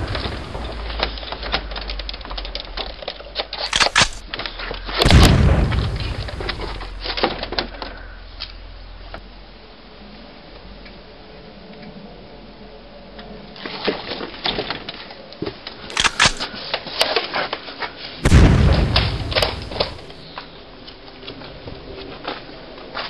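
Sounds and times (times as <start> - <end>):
explosion boom: 0.0 - 1.2, 5.0 - 7.2, 18.2 - 20.2
gunshots: 0.0 - 1.2, 3.6 - 4.2, 5.0 - 7.2, 15.9 - 16.5, 18.2 - 20.2.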